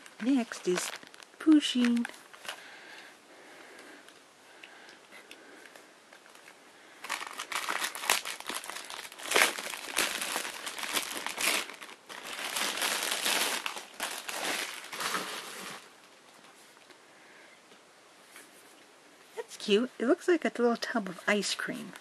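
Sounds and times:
packaging crinkling and rustling: 0:00.0 - 0:02.8, 0:05.6 - 0:16.9.

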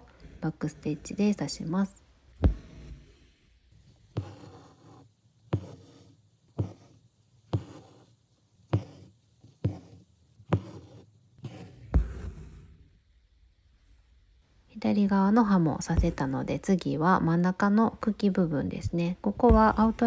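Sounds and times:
thread rasping through fabric: 0:02.4 - 0:12.6
needle tapping through taut fabric: 0:05.5 - 0:07.9, 0:08.7 - 0:12.4, 0:15.8 - 0:16.5, 0:19.3 - 0:20.0.

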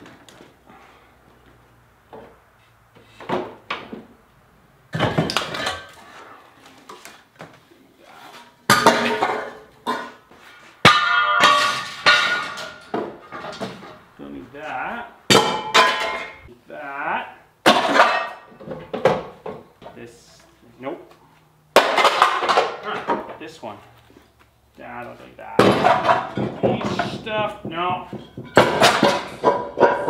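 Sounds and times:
metal parts clanking and scraping: 0:05.0 - 0:06.3, 0:11.3 - 0:14.1, 0:15.5 - 0:16.5, 0:28.2 - 0:30.0.

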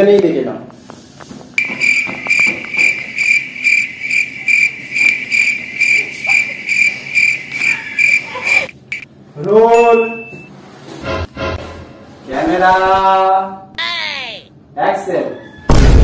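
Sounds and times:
cricket chirping: 0:01.6 - 0:09.0.

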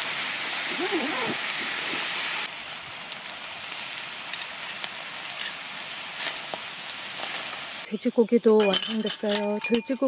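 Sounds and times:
meat sizzling in skillet: 0:00.0 - 0:07.9
light crackles: 0:00.5 - 0:07.9.

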